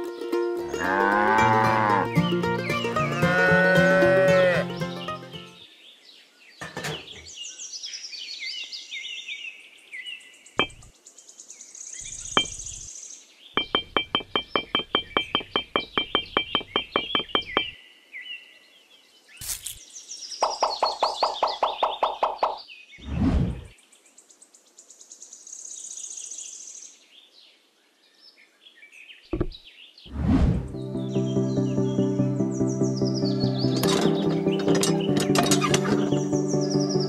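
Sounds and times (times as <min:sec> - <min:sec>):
birds chirping: 0:00.0 - 0:23.1, 0:26.0 - 0:37.0
cow mooing: 0:00.8 - 0:02.1, 0:03.1 - 0:04.7
sharp knocks: 0:10.6 - 0:10.9, 0:12.3 - 0:12.8, 0:13.6 - 0:17.8, 0:29.4 - 0:29.6.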